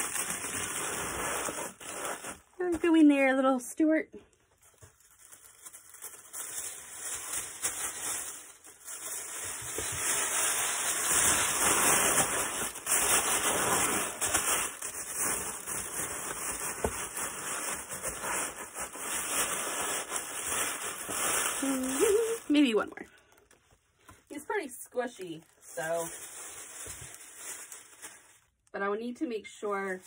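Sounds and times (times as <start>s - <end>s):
packaging rustling and crinkling: 0.0s - 3.1s, 4.3s - 28.7s.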